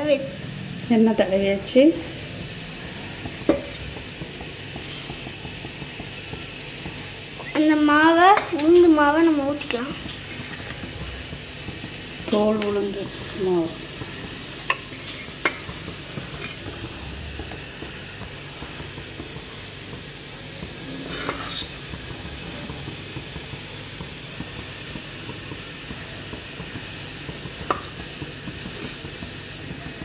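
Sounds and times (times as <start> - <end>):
metal spoon scraping metal plate: 20.9 - 21.8.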